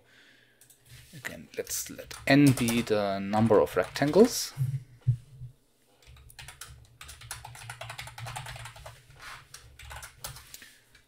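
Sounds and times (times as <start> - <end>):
typing on computer keyboard: 2.0 - 4.4, 6.0 - 10.5.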